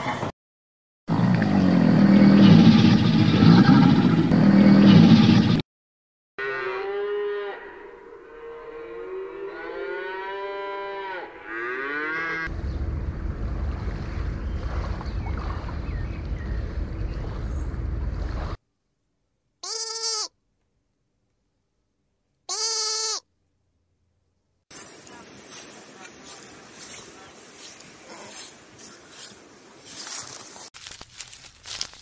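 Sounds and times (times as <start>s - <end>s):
cow mooing: 6.4s - 12.5s
rushing noise with low rumble: 12.5s - 18.6s
sheep bleat: 19.6s - 20.3s, 22.5s - 23.2s.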